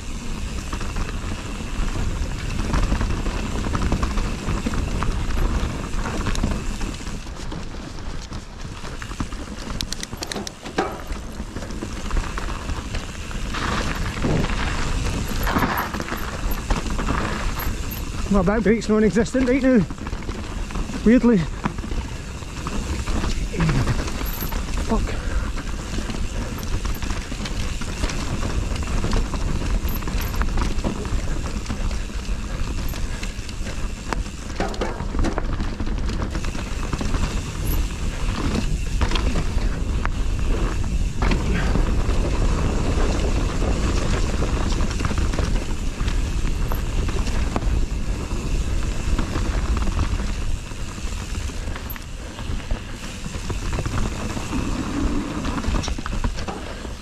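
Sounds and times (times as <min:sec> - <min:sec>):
bike clattering over bumps: 0:00.0 - 0:57.0
bike tyres rumbling on trail: 0:00.0 - 0:57.0
wind on microphone: 0:13.4 - 0:17.6.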